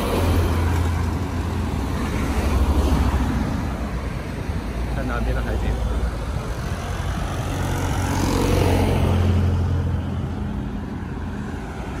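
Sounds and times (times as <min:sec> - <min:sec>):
vehicle passing by: 0:05.4 - 0:12.0.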